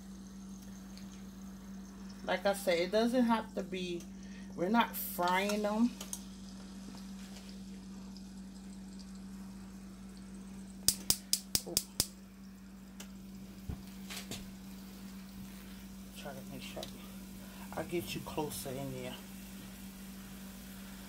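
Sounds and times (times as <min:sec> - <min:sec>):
steady low hum: 0:00.0 - 0:21.0
meat sizzling in a pan: 0:04.4 - 0:21.0.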